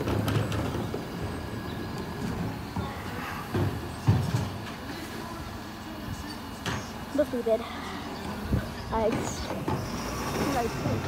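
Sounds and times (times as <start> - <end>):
garbage truck engine running: 0.0 - 11.0
wheelie bins wheeled: 0.0 - 11.0.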